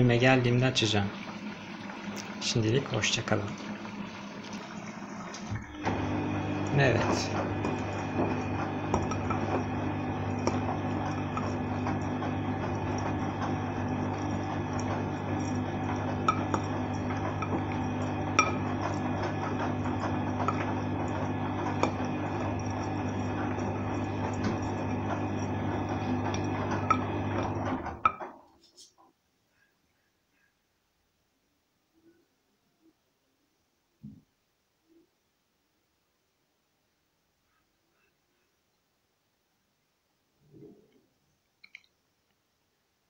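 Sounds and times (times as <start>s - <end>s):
washing machine filling with water: 0.0s - 28.4s.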